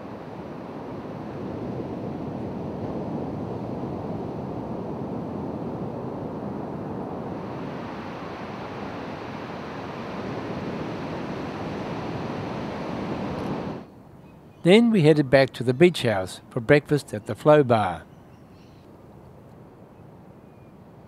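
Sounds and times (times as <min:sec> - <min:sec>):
ocean waves breaking on sand: 0:00.0 - 0:13.8.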